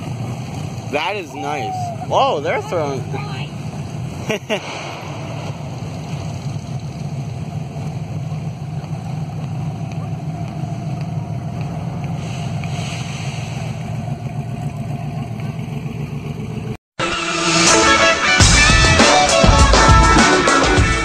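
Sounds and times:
car engines rumbling past: 0:00.0 - 0:16.8.

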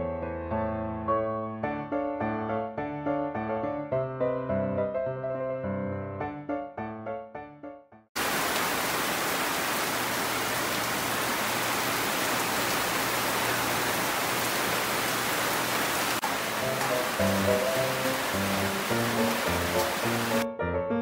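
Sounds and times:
soft piano music: 0:00.0 - 0:08.0, 0:16.2 - 0:21.0
heavy rain on metal roofs: 0:08.2 - 0:20.4.

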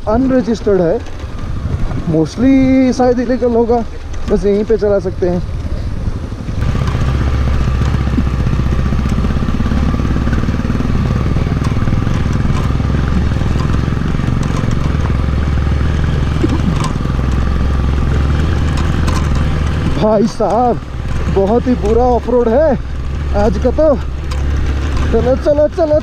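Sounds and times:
wind noise: 0:00.0 - 0:20.3
motorcycle engine running: 0:00.0 - 0:26.0
knocks and clatters: 0:00.8 - 0:02.1, 0:06.6 - 0:26.0.

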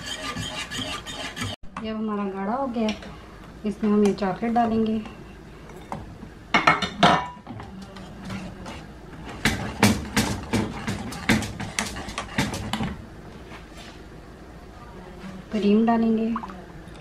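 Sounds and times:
whisk tapping metal pot: 0:00.0 - 0:01.6, 0:08.2 - 0:12.9.

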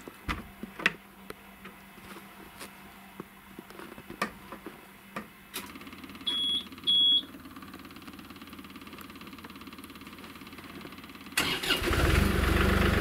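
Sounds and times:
diesel engine starting and idling: 0:05.6 - 0:13.0
high buzzer beeps: 0:06.3 - 0:07.3.

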